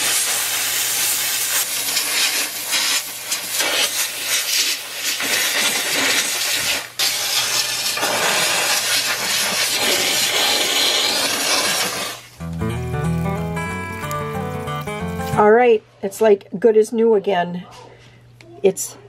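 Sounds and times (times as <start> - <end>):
steam cleaner hissing: 0.0 - 12.4.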